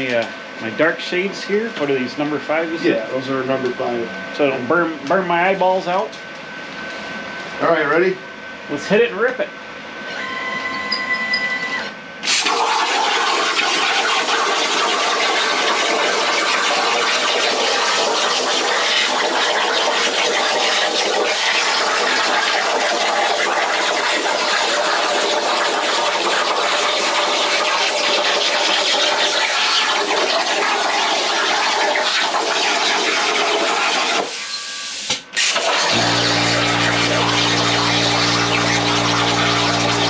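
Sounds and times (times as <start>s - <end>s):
plasma torch cutting steel: 12.2s - 40.0s.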